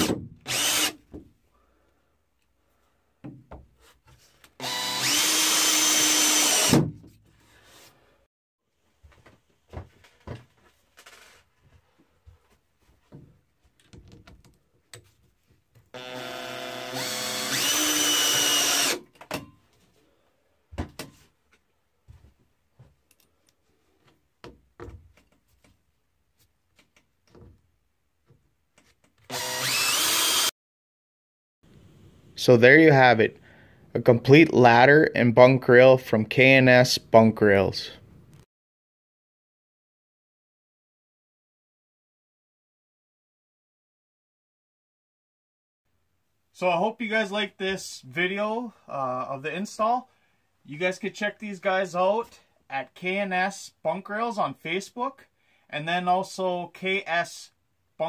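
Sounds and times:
cordless drill driving screws: 0:00.0 - 0:01.0, 0:04.6 - 0:06.8, 0:16.0 - 0:19.0, 0:29.3 - 0:30.5.

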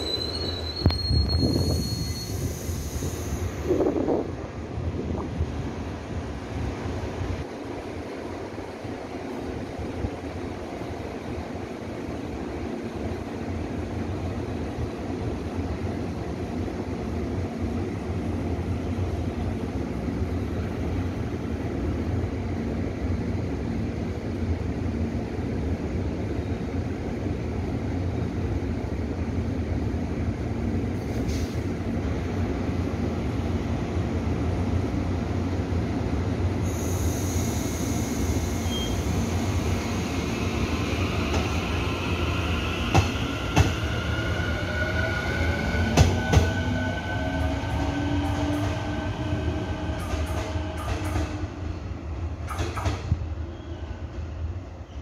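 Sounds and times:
rising train motor whine: 0:00.0 - 0:25.0, 0:31.8 - 0:55.0
electric train humming: 0:32.0 - 0:53.5.

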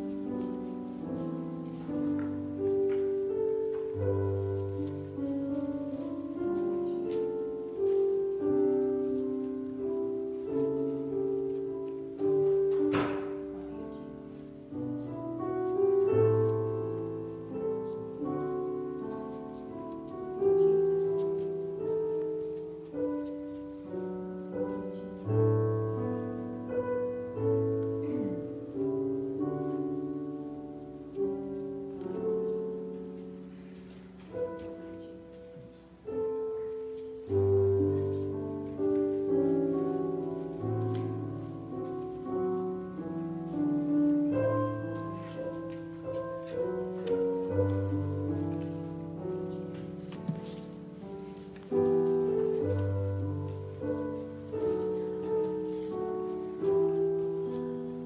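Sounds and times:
slow piano chords: 0:00.0 - 0:58.0.

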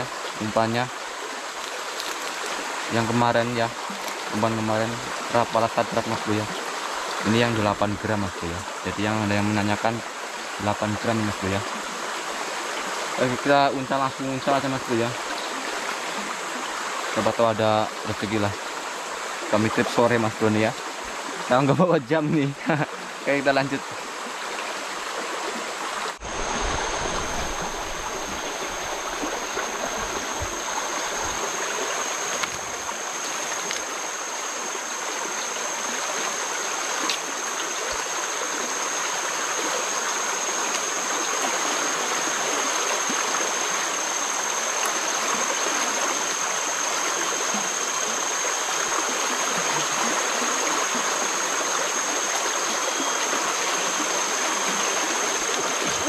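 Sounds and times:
river water rushing: 0:22.7 - 0:56.0.

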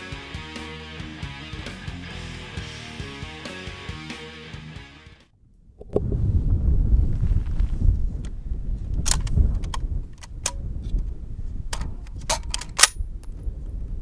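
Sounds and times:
wind rumble on microphone: 0:05.4 - 0:14.0
rifle metallic clicks and clacks: 0:09.0 - 0:11.0, 0:11.7 - 0:13.0.

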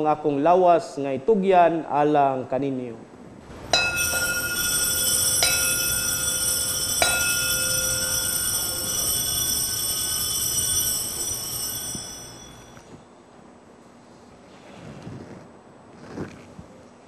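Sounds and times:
altar bell ringing: 0:03.5 - 0:13.0.

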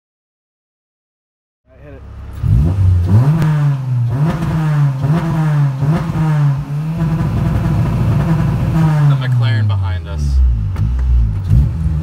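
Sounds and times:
four-cylinder engine revving: 0:01.7 - 0:12.0.

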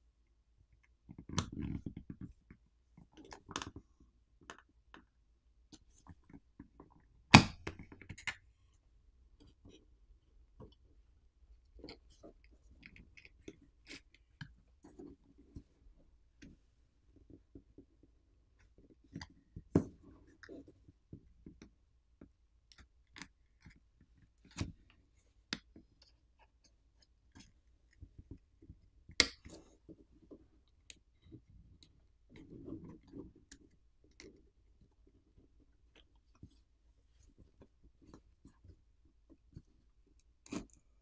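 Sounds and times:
plastic pick clicking and scraping: 0:39.4 - 0:41.0.

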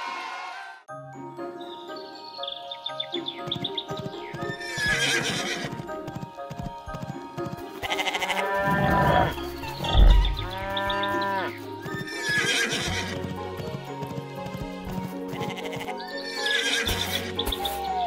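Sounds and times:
cartoon background music: 0:00.0 - 0:18.0
farm animal calls: 0:07.8 - 0:13.2, 0:15.4 - 0:17.9
low thump: 0:09.8 - 0:10.6.

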